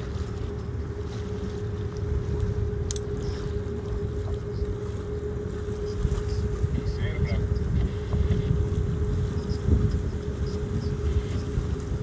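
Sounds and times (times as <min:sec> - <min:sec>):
boat engine running: 0:00.0 - 0:12.0
wind on microphone: 0:05.4 - 0:12.0.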